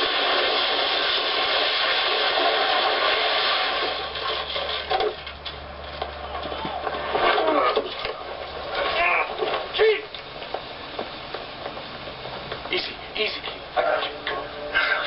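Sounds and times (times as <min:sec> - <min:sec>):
car crash rushing noise: 0:00.0 - 0:05.4.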